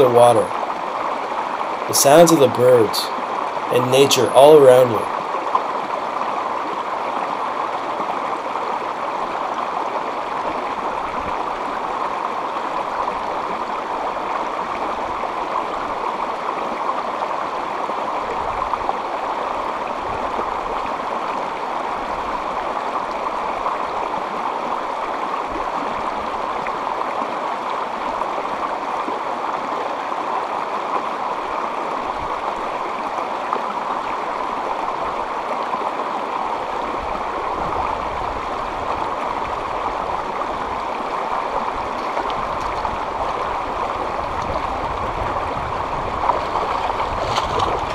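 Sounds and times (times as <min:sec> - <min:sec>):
water rushing over rocks: 0:00.0 - 0:47.9.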